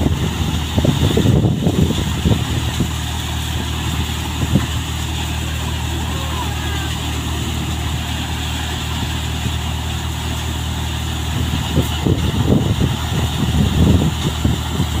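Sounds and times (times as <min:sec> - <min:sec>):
thresher humming: 0:00.0 - 0:15.0.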